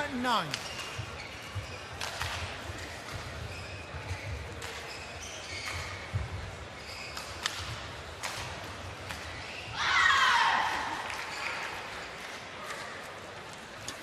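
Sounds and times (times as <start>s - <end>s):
shoes squeaking on court: 0.0s - 9.8s.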